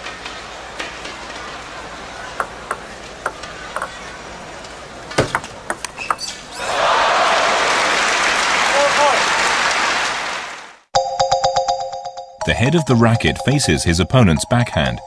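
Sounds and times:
crowd murmur: 0.1 - 5.1
table tennis ball clicking: 2.4 - 6.2.

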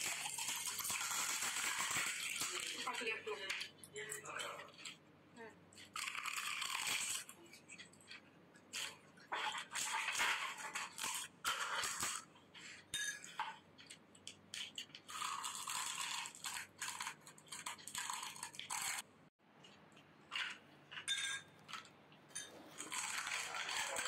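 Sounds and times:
crisp shells crunching: 5.8 - 7.3, 15.1 - 19.0, 22.8 - 24.0
spoon clinking on glass bowl: 13.0 - 13.4, 21.0 - 21.6.

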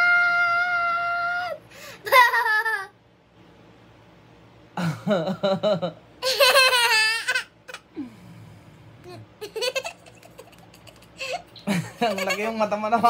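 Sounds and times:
girl giggling: 2.0 - 2.9, 4.8 - 7.4, 9.1 - 12.5.

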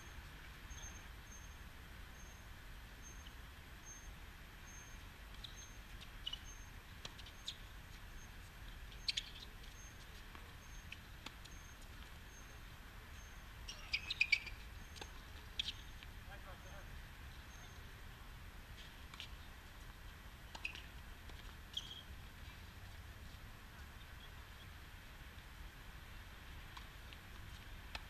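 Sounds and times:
low outdoor hum: 0.0 - 28.0
bird chirps: 9.0 - 10.0, 13.2 - 15.0, 15.6 - 16.0, 21.7 - 22.1.

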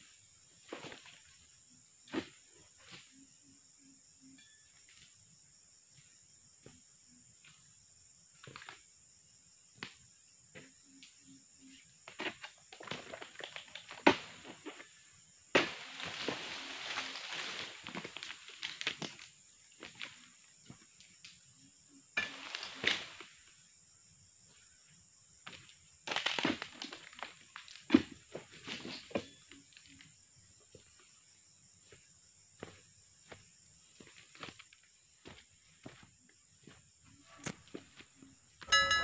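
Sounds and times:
insect buzz: 0.0 - 39.0
dry fronds crackling and knocking: 15.5 - 20.0, 26.0 - 28.0.

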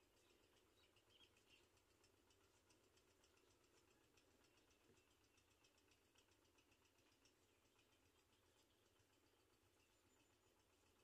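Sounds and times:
rapid high ticking: 0.0 - 11.0.

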